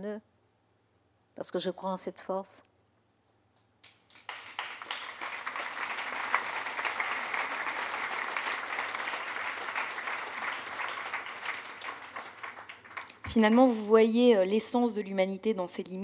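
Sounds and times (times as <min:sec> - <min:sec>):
audience applauding: 0:03.8 - 0:13.8.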